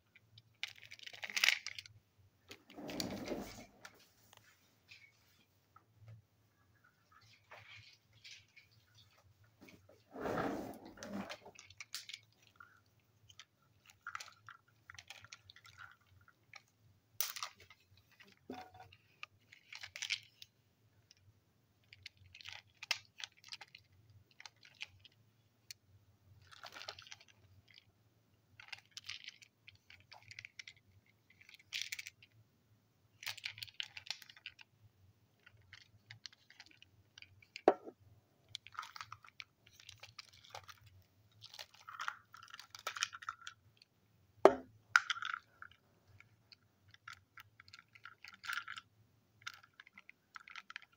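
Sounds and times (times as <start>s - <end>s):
plastic toy trucks rattling: 46.5s - 50.9s.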